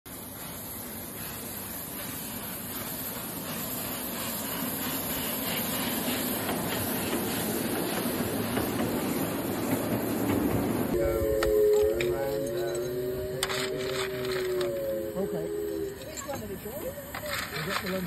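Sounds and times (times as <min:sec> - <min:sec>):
faint steam exhaust chuffs: 0:00.1 - 0:18.0
steam hissing: 0:00.1 - 0:18.0.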